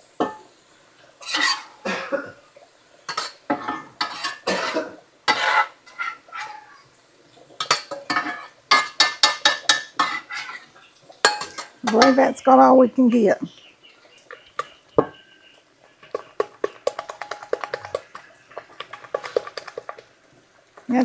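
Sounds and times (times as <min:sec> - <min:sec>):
metal spoon scraping a skillet: 0:01.2 - 0:01.8, 0:03.1 - 0:06.8, 0:07.6 - 0:12.2, 0:16.0 - 0:20.1.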